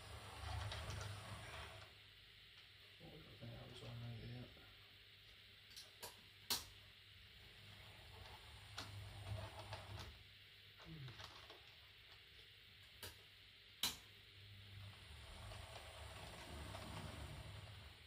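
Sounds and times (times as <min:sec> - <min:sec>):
model train running: 0:14.8 - 0:18.0.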